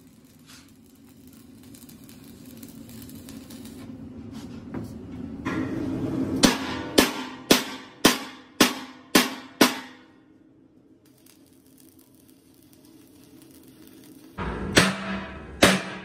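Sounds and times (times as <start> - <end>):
workshop noise: 0.0 - 16.0
hammer striking metal tank: 6.4 - 10.1, 14.4 - 16.0.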